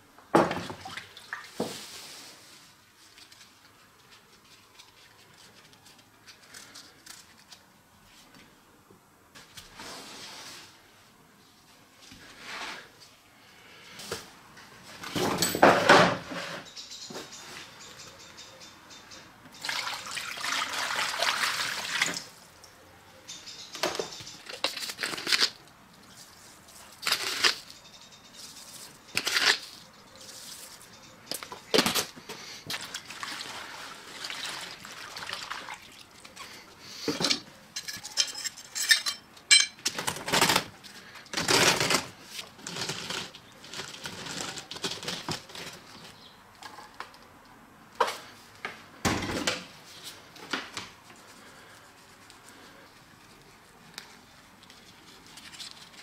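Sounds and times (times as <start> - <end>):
water splashing and sloshing: 0.4 - 2.3, 19.5 - 22.5, 32.7 - 36.6
water pouring into plastic tray: 19.6 - 22.3, 32.7 - 36.1.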